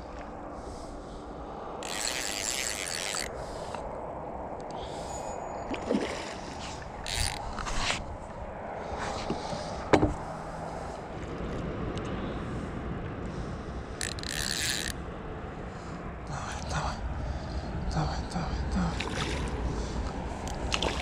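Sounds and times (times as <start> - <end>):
water splashing and sloshing: 0.0 - 11.7, 18.6 - 21.0.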